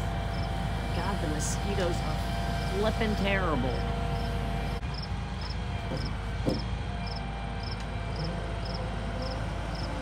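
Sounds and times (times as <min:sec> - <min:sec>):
truck engine and hydraulics running: 0:00.0 - 0:10.0
crickets chirping: 0:04.9 - 0:06.1, 0:07.0 - 0:09.9.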